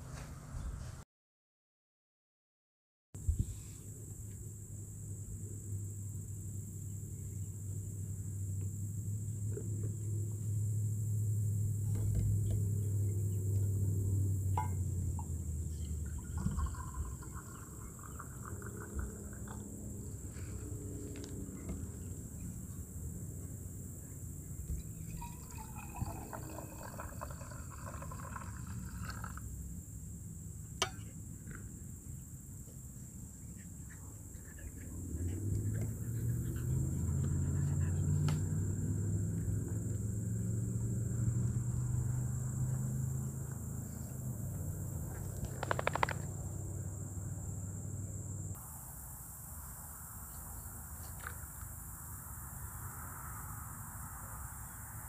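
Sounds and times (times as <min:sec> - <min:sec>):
coffee pouring into a mug: 0:16.0 - 0:19.8, 0:25.0 - 0:29.4.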